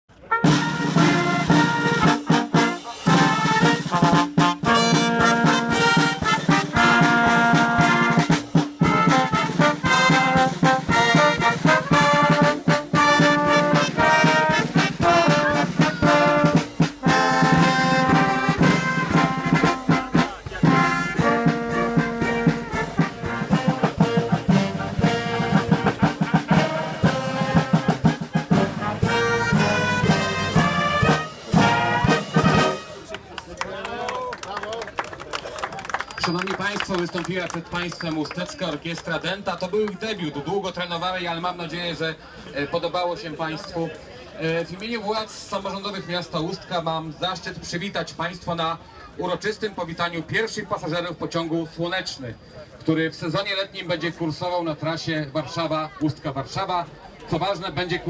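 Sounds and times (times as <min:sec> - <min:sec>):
brass band playing: 0:00.1 - 0:33.2
snare and bass drum beat: 0:00.4 - 0:32.9.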